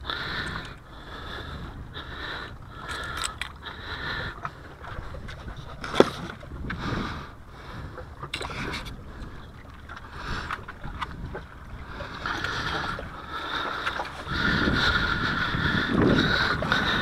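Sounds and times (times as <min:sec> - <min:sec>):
wind rumble on microphone: 0:00.0 - 0:17.0
fishing tackle clicking and rustling: 0:02.8 - 0:03.6, 0:08.2 - 0:09.0.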